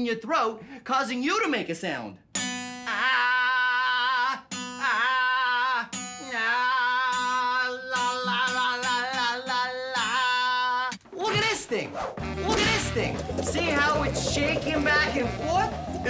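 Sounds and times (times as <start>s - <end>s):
acoustic guitar strumming: 2.3s - 2.9s, 5.9s - 6.2s, 7.1s - 10.2s, 11.3s - 16.0s
man singing with vibrato: 2.8s - 11.0s.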